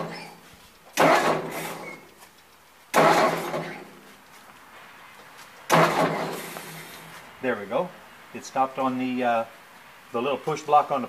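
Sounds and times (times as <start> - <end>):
tractor starter cranking: 0.0 - 4.0, 5.7 - 7.1.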